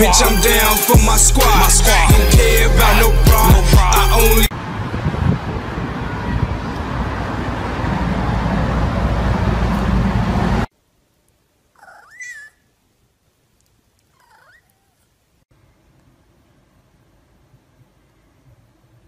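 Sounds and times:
hip-hop music: 0.0 - 4.5.

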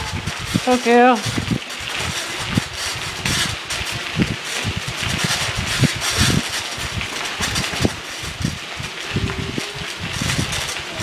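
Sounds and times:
microphone rustling hiss: 0.0 - 11.0.

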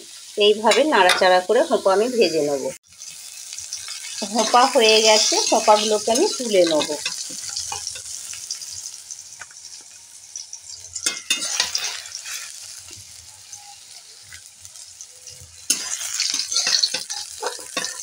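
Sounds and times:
vegetables sizzling in oil: 0.0 - 18.0
spatula scraping metal pan: 10.9 - 13.0, 15.6 - 18.0.

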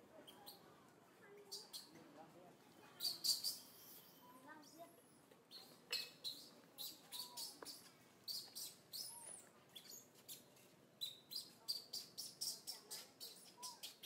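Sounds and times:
infant monkey squeaking and squealing: 0.2 - 0.7, 1.5 - 2.0, 3.0 - 4.3, 5.5 - 14.0
monkey coo calls: 6.2 - 7.8.

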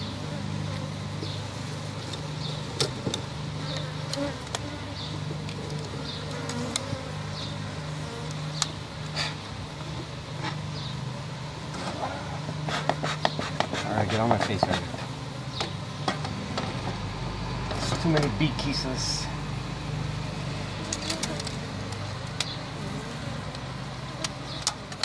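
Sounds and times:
honeybees buzzing: 0.0 - 25.0.

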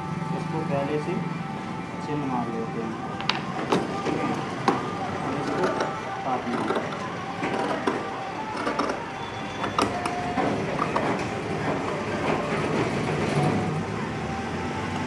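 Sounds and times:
steady background noise: 0.0 - 15.0.

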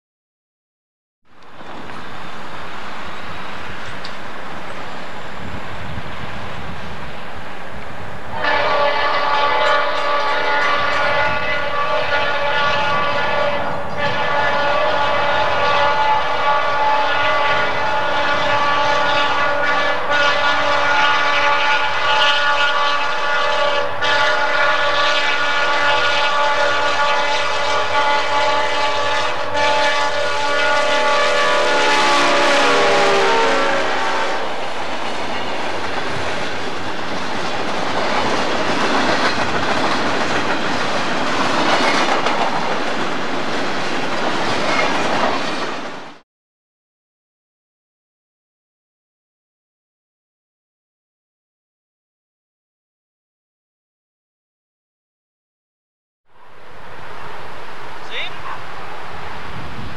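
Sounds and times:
locomotive air horn blasts: 8.3 - 34.6
train wheels clattering over rails: 34.7 - 46.2.

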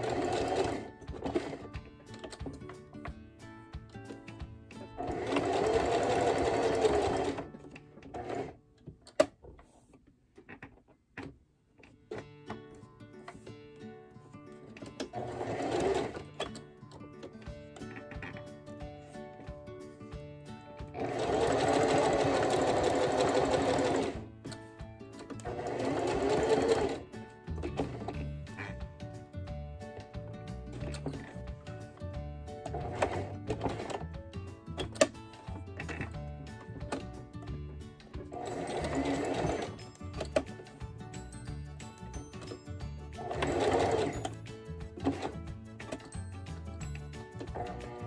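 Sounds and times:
sewing machine stitching: 0.0 - 2.6, 4.9 - 8.6, 14.7 - 18.4, 20.8 - 24.6, 25.2 - 28.8, 30.7 - 31.6, 32.6 - 37.2, 38.1 - 40.8, 43.1 - 48.0.

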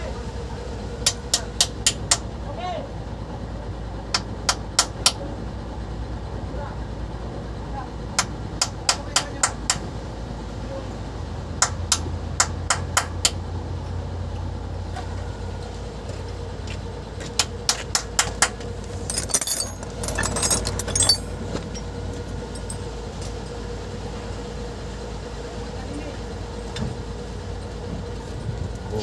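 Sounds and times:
low engine hum: 0.0 - 29.0
metal hand tools clattering: 19.0 - 21.6.

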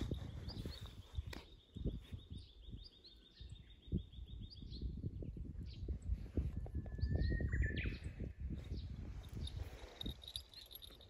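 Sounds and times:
footsteps in dry grass: 0.0 - 1.5
bird whistling song: 6.7 - 8.4.

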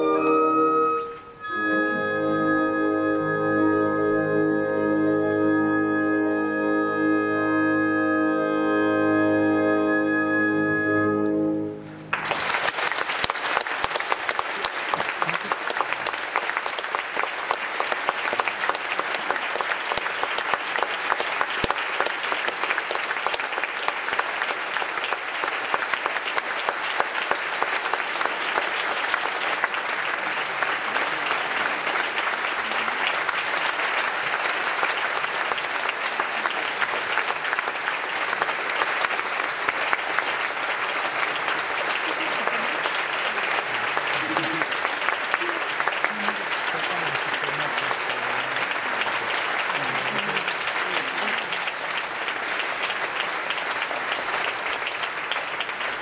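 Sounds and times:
audience applauding: 12.0 - 56.0.

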